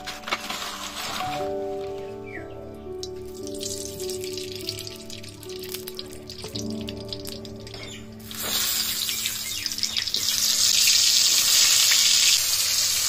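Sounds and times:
hot oil sizzling: 3.2 - 13.0.

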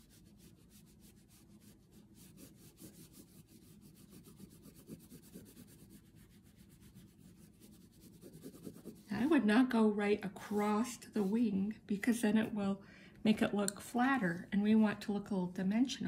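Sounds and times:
oil pastel scratching on paper: 0.0 - 9.8, 10.4 - 11.6.

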